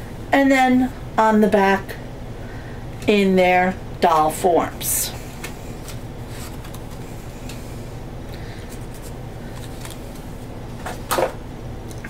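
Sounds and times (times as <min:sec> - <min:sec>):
low room hum: 0:00.0 - 0:12.0
paper handling: 0:05.4 - 0:07.6, 0:08.6 - 0:11.3.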